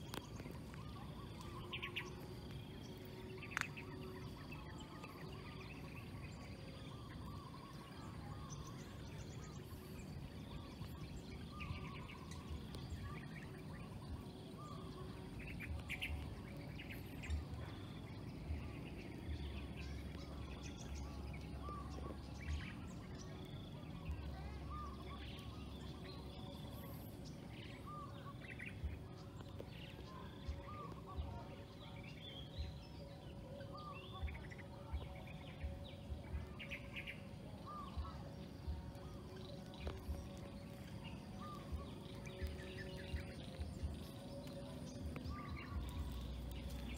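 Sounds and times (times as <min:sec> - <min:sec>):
birds chirping: 0:00.0 - 0:46.9
outdoor background noise: 0:00.0 - 0:46.9.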